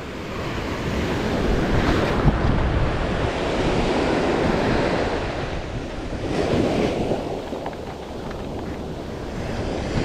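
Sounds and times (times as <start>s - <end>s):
wind buffeting microphone: 0.0s - 10.0s
surf breaking on beach: 0.3s - 10.0s.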